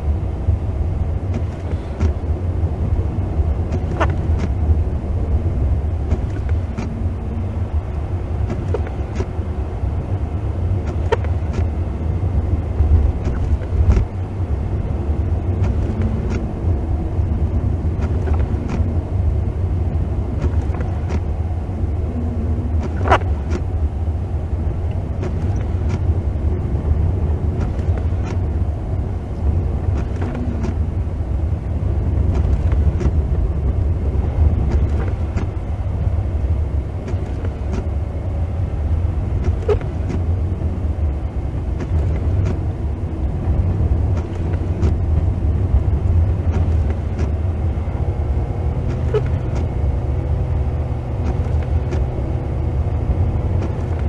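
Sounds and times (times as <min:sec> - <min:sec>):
car engine and tyres rumbling: 0:00.0 - 0:54.0
faint steady hum: 0:00.0 - 0:54.0
light clicks: 0:15.5 - 0:16.5, 0:27.6 - 0:28.4, 0:29.4 - 0:30.8, 0:32.2 - 0:33.2.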